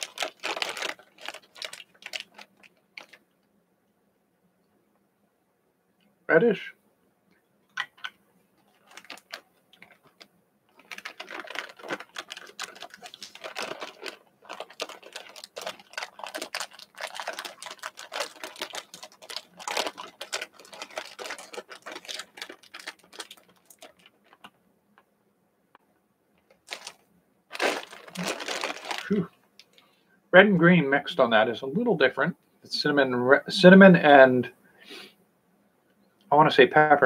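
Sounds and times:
jelly beans clicking and rattling: 0:00.0 - 0:03.3, 0:07.7 - 0:24.6, 0:26.4 - 0:29.8.

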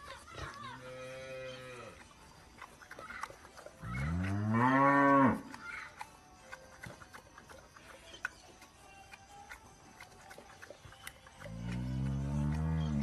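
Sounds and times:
cow mooing: 0:03.9 - 0:05.4, 0:11.5 - 0:13.0.

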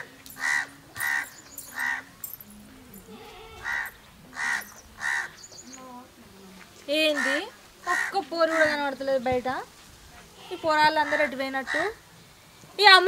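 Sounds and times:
crow cawing: 0:00.4 - 0:02.0, 0:03.2 - 0:05.4, 0:07.1 - 0:08.8.

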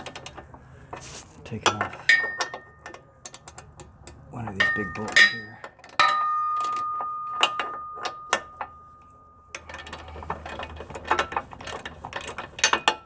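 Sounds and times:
metal clank with ringing tone: 0:01.7 - 0:03.0, 0:04.6 - 0:09.8.

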